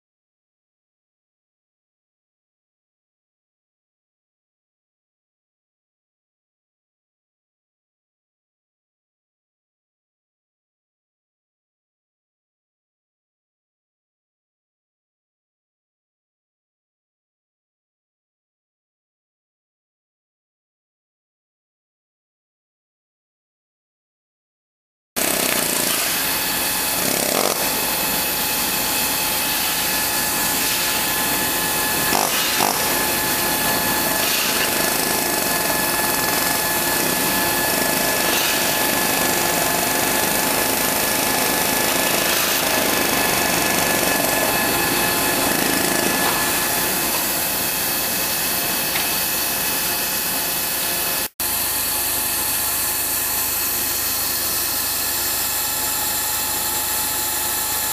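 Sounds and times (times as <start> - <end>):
milling machine cutting metal: 25.2 - 57.9
thin high whine: 27.6 - 57.9.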